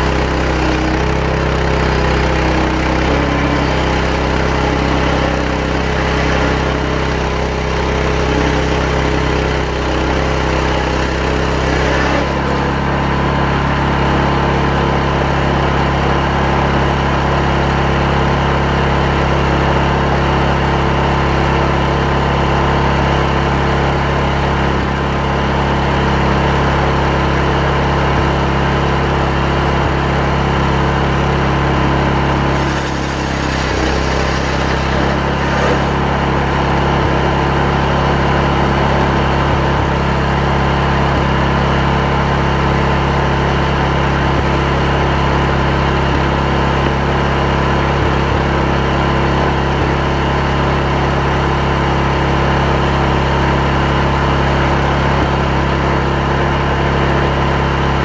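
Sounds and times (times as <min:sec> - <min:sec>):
chainsaw cutting log: 0:00.0 - 0:14.9, 0:31.5 - 0:37.7.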